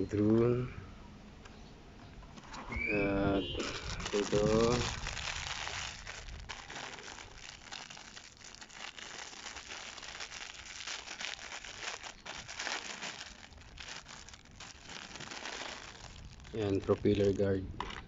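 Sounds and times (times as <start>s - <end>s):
plastic bag crinkling: 3.6s - 18.0s.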